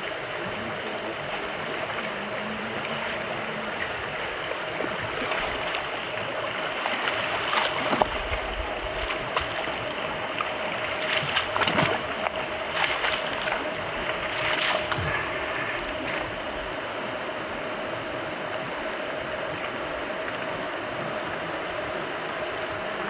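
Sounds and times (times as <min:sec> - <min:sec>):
feet splashing in water: 0:05.1 - 0:16.3.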